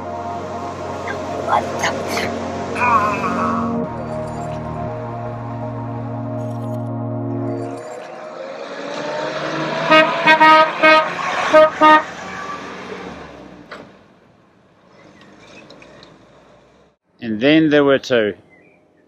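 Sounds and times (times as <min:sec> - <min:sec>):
vehicle driving past: 0:07.4 - 0:17.0
car horn toots: 0:09.8 - 0:12.2.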